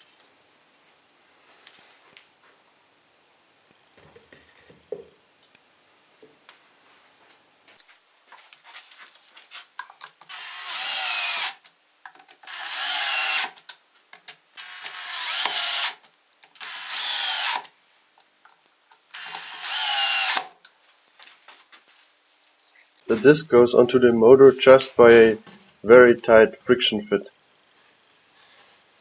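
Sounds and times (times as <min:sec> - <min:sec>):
cordless drill whining: 0:10.3 - 0:11.6, 0:12.5 - 0:13.6, 0:14.6 - 0:16.0, 0:16.6 - 0:17.7, 0:19.2 - 0:20.5.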